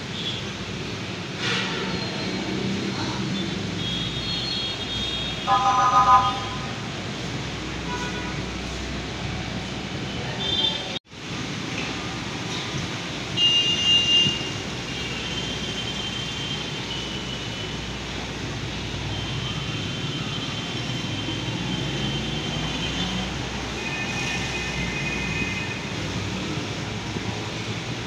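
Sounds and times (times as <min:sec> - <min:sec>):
street traffic rumble: 0:00.0 - 0:28.0.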